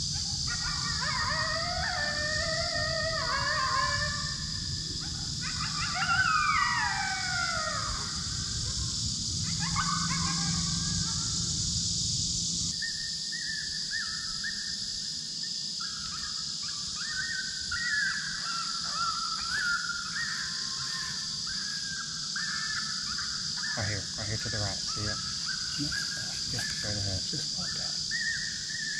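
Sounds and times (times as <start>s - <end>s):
coyote howls: 0.0s - 11.8s, 12.7s - 15.1s, 15.8s - 28.9s
steady high hiss: 0.0s - 28.9s
high whimpering whines: 17.0s - 28.9s.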